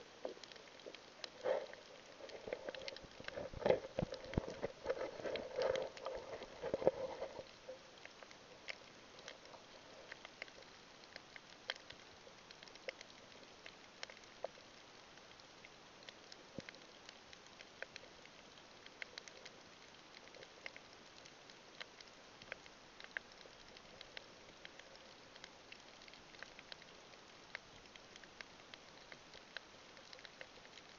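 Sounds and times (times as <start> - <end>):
sharp clicks and crackles: 0.1 - 30.9.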